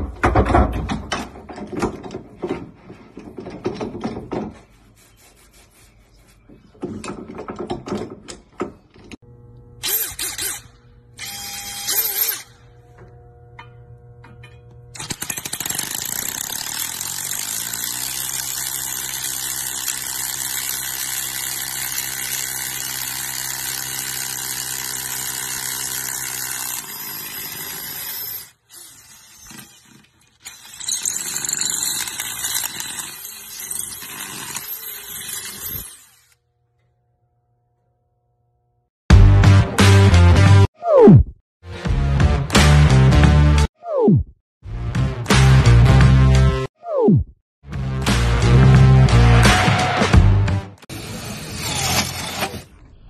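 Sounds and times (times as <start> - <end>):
hammer drill drilling into concrete: 9.8 - 12.5, 15.0 - 36.4.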